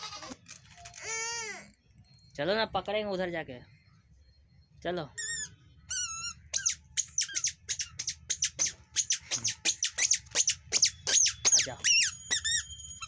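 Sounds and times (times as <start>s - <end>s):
squeaky shoes squeaking: 5.2s - 13.0s.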